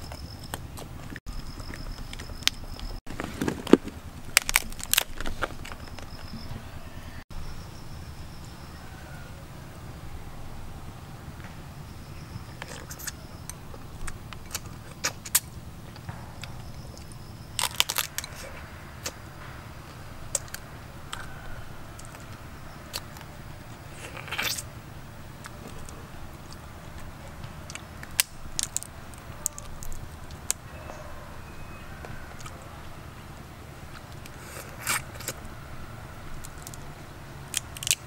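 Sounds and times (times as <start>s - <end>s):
clicks and crackles from lips and shell: 0.0s - 6.4s, 12.5s - 19.2s, 20.3s - 21.3s, 24.0s - 24.7s, 25.3s - 30.6s, 33.9s - 35.4s, 36.4s - 36.8s, 37.5s - 38.0s
biting and chewing crab meat: 0.0s - 7.0s, 12.1s - 38.0s
steady low background hum: 0.0s - 38.0s.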